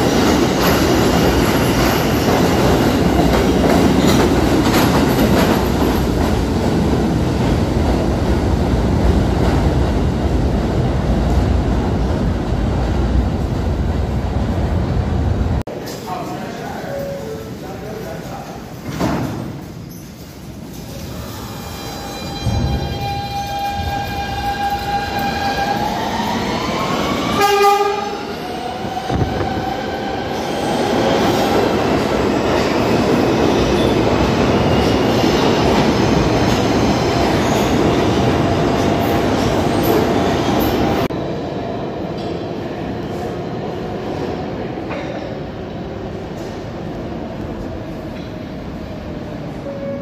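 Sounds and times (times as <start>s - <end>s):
subway train whine: 0.0s - 50.0s
train rushing past platform: 0.0s - 50.0s
train horn blast: 27.4s - 28.2s.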